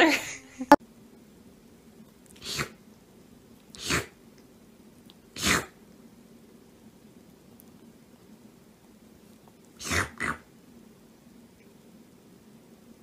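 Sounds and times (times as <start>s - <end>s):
kitten sneezing: 2.4s - 2.8s, 3.8s - 4.2s, 5.4s - 5.8s, 9.8s - 10.4s.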